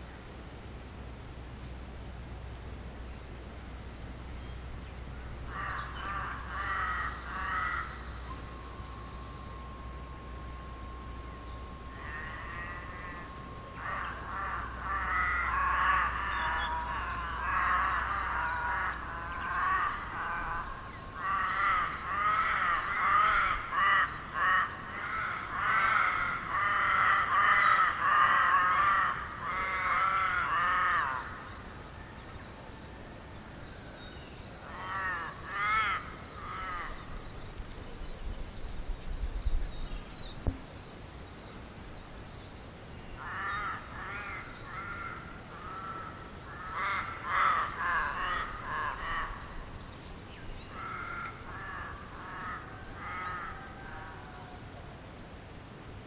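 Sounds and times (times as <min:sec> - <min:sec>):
wild birds calling: 0:02.7 - 0:55.0.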